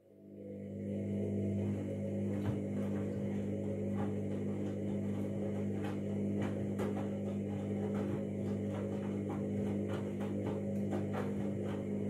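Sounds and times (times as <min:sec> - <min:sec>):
washing machine humming: 0:00.0 - 0:12.0
laundry knocking in drum: 0:02.3 - 0:12.0.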